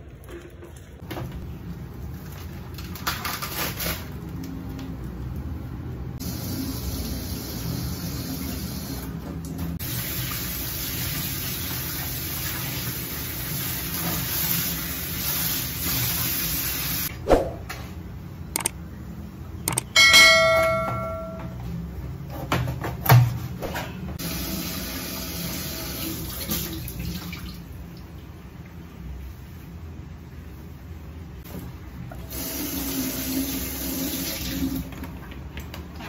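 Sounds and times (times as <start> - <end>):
ringing bell chime: 20.0 - 21.6.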